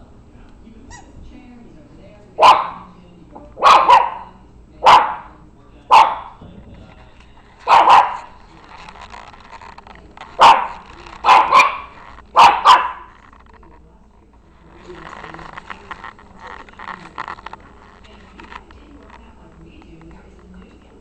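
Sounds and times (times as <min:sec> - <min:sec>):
puppy yapping: 0:02.4 - 0:02.9, 0:03.6 - 0:05.3, 0:05.9 - 0:06.4, 0:07.6 - 0:08.4, 0:10.4 - 0:13.1.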